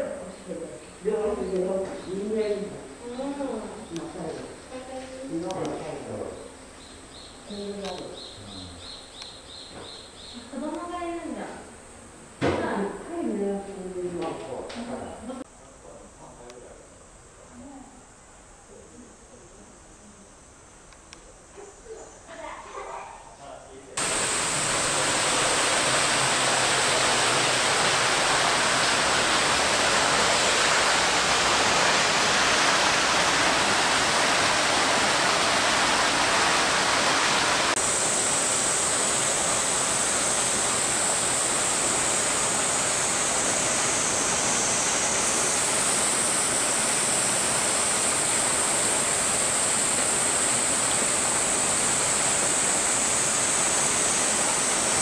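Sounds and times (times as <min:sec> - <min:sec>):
rushing hiss: 0:24.0 - 0:55.0.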